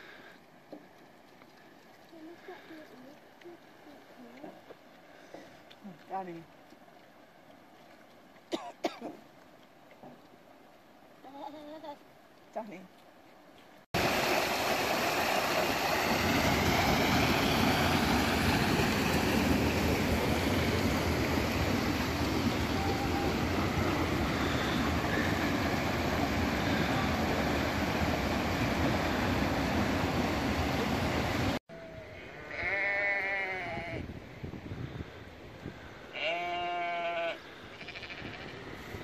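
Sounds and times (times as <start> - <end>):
stream water rushing: 14.0 - 31.6
sheep bleating: 32.2 - 34.0, 36.1 - 38.6.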